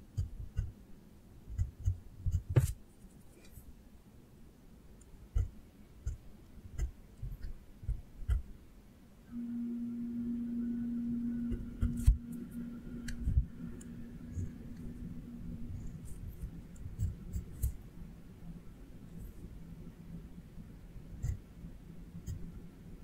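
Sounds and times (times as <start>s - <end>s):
steady low hum: 0.0s - 23.0s
pencil strokes on paper: 15.7s - 17.8s.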